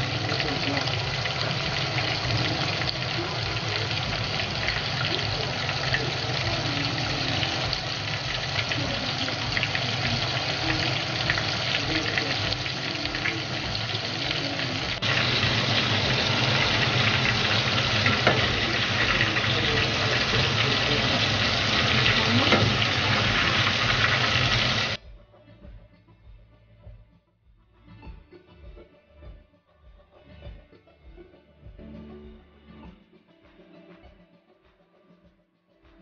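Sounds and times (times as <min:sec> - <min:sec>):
meat deep-frying in oil: 0:00.0 - 0:25.0.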